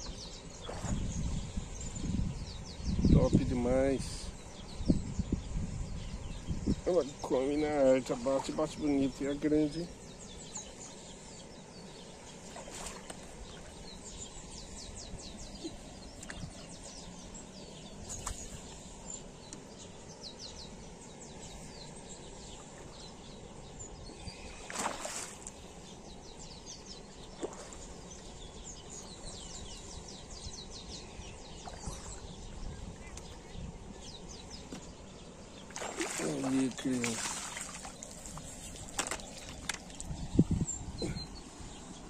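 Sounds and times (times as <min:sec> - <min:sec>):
small birds chirping: 0:00.0 - 0:42.0
fish splashing in water: 0:12.5 - 0:13.8, 0:24.6 - 0:25.6, 0:35.6 - 0:40.0.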